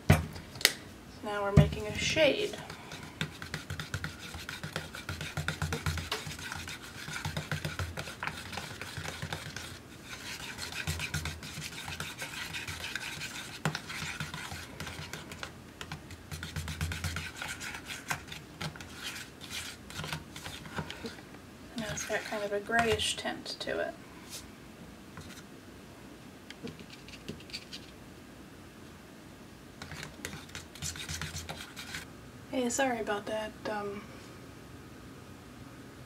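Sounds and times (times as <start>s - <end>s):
knife scraping plastic cup: 2.6s - 15.5s, 16.3s - 21.2s.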